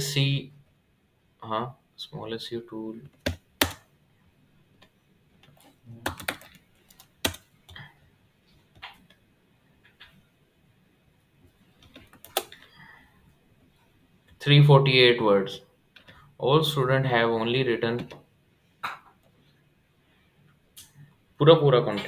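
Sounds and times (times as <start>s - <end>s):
computer keyboard keystrokes: 3.1s - 3.8s, 5.5s - 7.8s, 11.8s - 12.6s.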